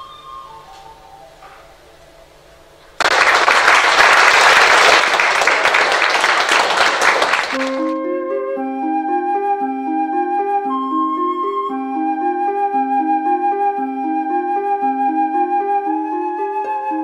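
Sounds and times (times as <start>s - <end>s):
flute music: 0.0s - 2.4s, 7.1s - 17.0s
audience applauding: 3.0s - 8.0s.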